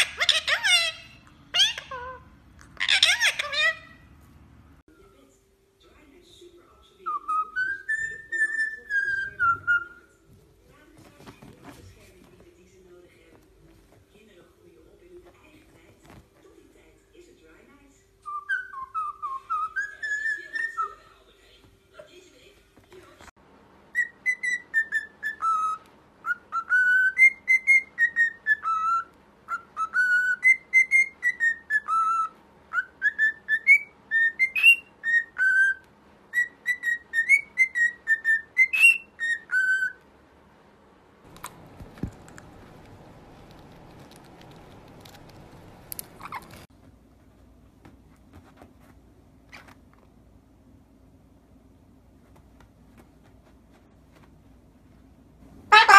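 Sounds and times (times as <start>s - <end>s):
cockatiel whistling a tune: 7.1s - 10.1s, 18.2s - 20.9s, 23.9s - 40.0s
faint rustling: 9.1s - 16.9s, 41.2s - 50.3s.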